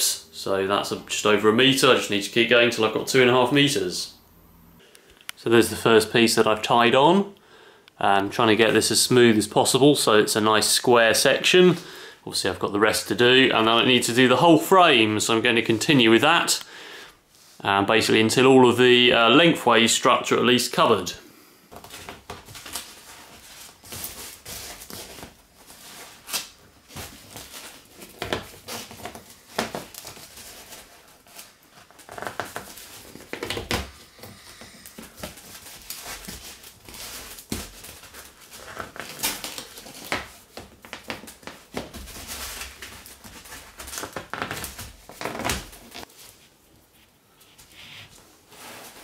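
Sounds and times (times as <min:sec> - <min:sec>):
cloth rustling and crinkling: 0:21.7 - 0:49.0.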